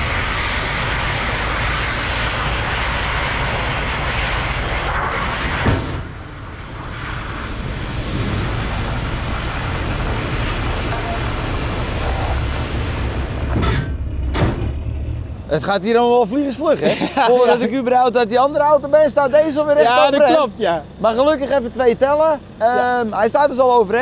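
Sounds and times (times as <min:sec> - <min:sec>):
truck engine running: 0:00.0 - 0:24.0
sharp knock: 0:05.6 - 0:06.1.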